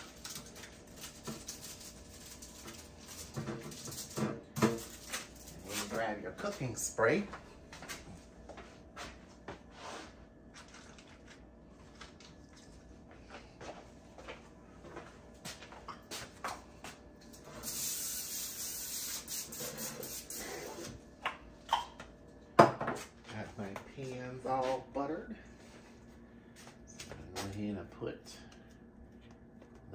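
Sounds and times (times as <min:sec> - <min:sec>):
aerosol spray hissing: 0:17.6 - 0:20.8.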